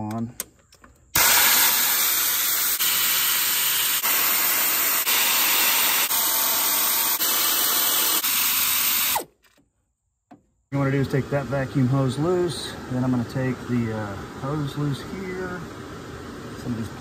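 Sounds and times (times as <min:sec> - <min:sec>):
air ratchet hissing: 0:01.2 - 0:09.3.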